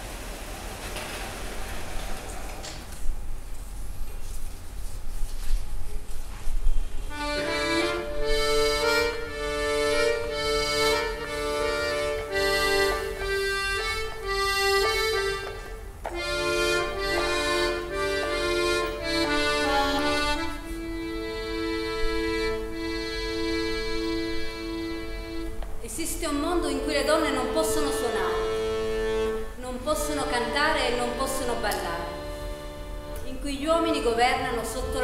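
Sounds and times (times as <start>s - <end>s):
piano accordion melody: 7.0s - 35.0s.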